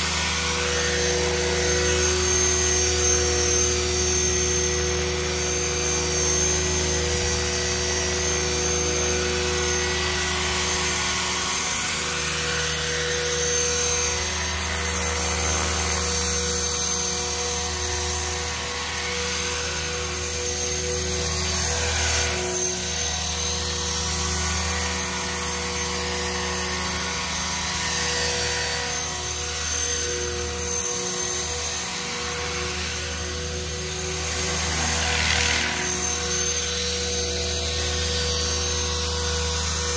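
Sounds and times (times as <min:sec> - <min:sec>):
rc helicopter whining and buzzing: 0:00.0 - 0:39.9.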